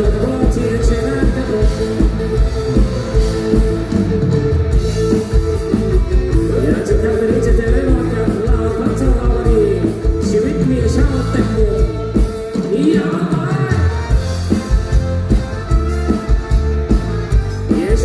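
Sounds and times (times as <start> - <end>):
man singing into microphone: 0.0 - 2.1, 6.5 - 14.2, 17.7 - 18.0
amplified rock-pop band: 0.0 - 18.0.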